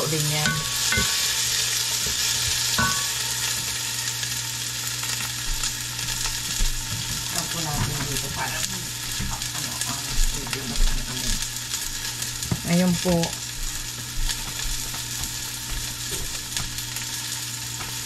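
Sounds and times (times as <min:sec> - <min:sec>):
steady low hum: 0:00.0 - 0:01.9
onion sizzling in oil: 0:00.0 - 0:18.0.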